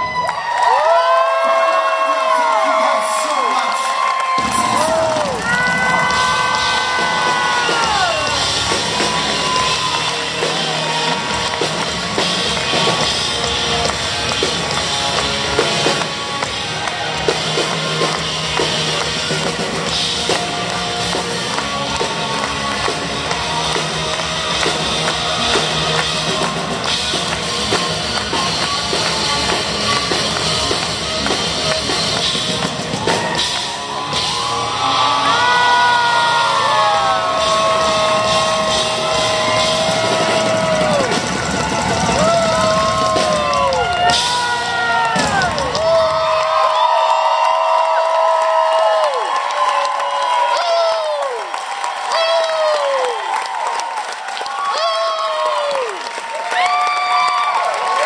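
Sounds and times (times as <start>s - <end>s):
drum kit: 4.3s - 49.1s.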